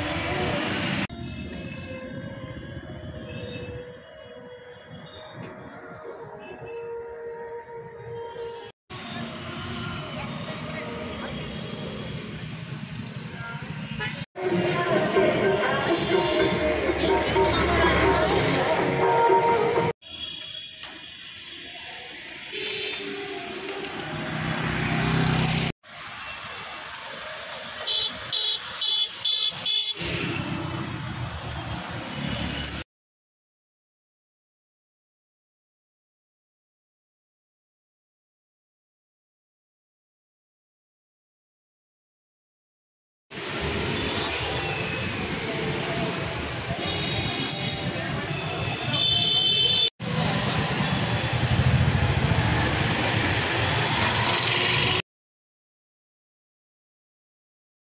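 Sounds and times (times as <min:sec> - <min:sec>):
traffic noise: 0:00.0 - 0:32.9, 0:43.3 - 0:55.0.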